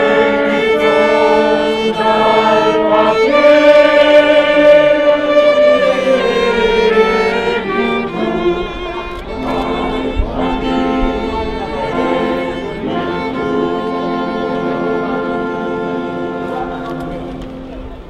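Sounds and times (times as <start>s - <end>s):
group singing: 0.0s - 16.4s
trombone playing held notes: 0.0s - 18.0s
violin playing held notes: 0.0s - 18.0s.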